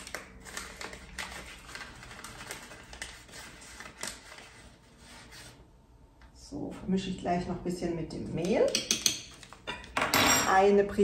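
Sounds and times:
teaspoon tapping container: 0:08.6 - 0:09.4.

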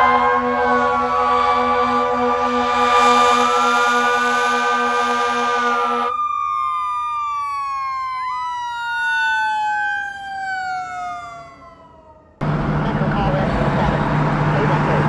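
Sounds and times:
engine running: 0:00.0 - 0:06.1, 0:12.4 - 0:15.0
siren wailing: 0:00.0 - 0:12.5
road noise: 0:00.0 - 0:15.0.

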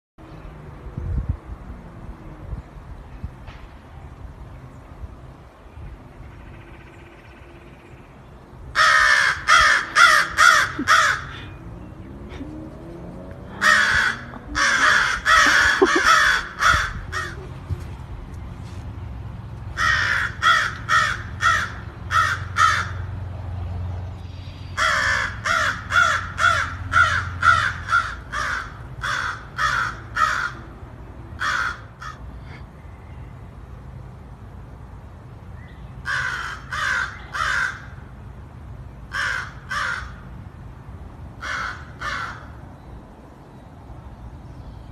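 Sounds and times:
crow cawing: 0:08.8 - 0:11.5, 0:13.5 - 0:17.4, 0:19.8 - 0:23.1, 0:24.8 - 0:30.7, 0:31.4 - 0:32.6, 0:36.0 - 0:38.0, 0:39.1 - 0:40.2, 0:41.4 - 0:42.5.

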